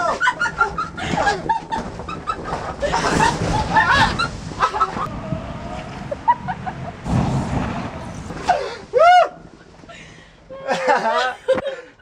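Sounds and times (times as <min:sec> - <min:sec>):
ball rolling rumble: 0:00.4 - 0:08.5.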